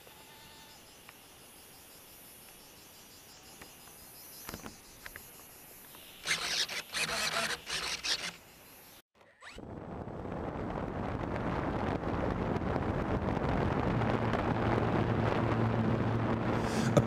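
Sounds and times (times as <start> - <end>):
high-pitched insect chorus: 0.0 - 9.0.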